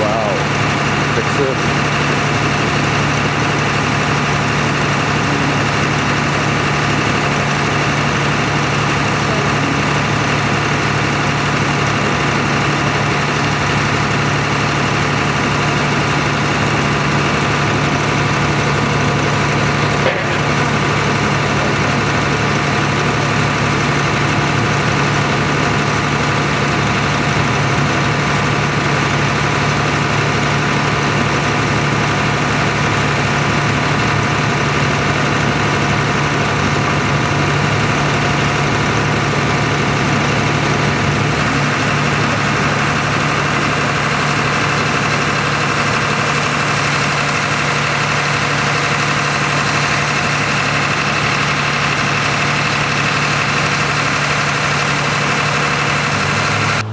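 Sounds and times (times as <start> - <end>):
vehicle engine idling: 0.0 - 56.9.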